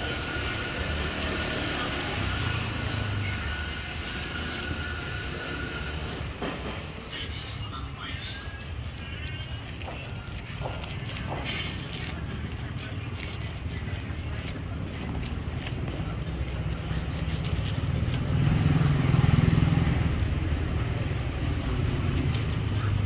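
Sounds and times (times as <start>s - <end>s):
vehicle rumbling past: 14.8s - 23.0s.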